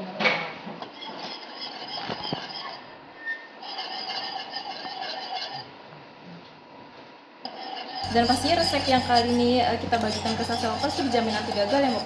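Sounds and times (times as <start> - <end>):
wire whisk stirring in a pot: 0.8 - 5.8, 7.5 - 12.0
whisk clicking against pot: 8.1 - 12.0.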